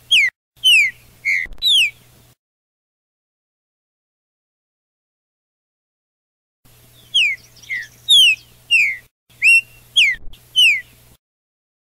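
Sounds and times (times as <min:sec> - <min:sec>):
songbird whistling descending notes: 0:00.1 - 0:02.0, 0:07.0 - 0:11.0.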